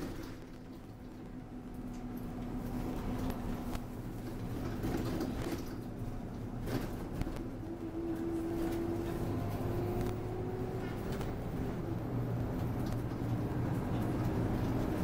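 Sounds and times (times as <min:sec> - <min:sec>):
bus engine hum: 0:00.0 - 0:15.0
road noise: 0:00.0 - 0:15.0.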